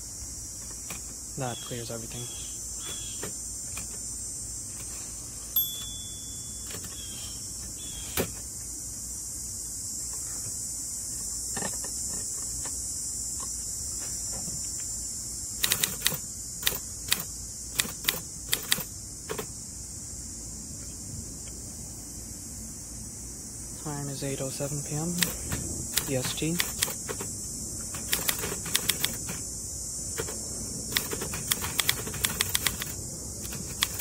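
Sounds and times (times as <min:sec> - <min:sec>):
crickets chirring: 0:00.0 - 0:34.0
typewriter clicking: 0:06.6 - 0:07.0, 0:15.6 - 0:19.5, 0:25.2 - 0:27.3, 0:27.9 - 0:29.4, 0:30.2 - 0:34.0.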